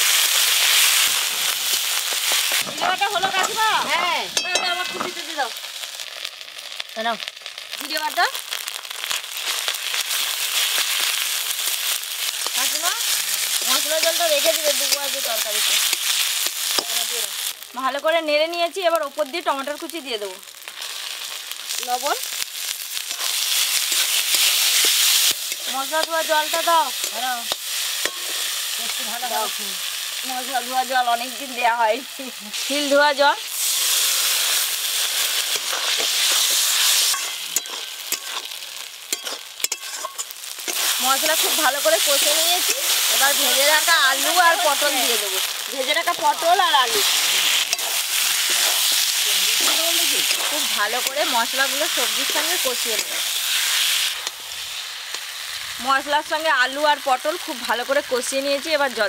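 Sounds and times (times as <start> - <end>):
paste sizzling in hot oil: 0.0 - 59.0
metal spatula scraping pan: 28.0 - 28.5, 35.5 - 38.5, 39.1 - 43.4, 46.1 - 51.3.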